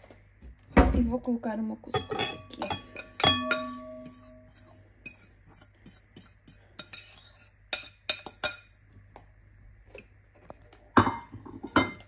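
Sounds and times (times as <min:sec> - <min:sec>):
bowl ringing: 0:02.0 - 0:04.5
metal utensil scraping a bowl: 0:02.0 - 0:08.6.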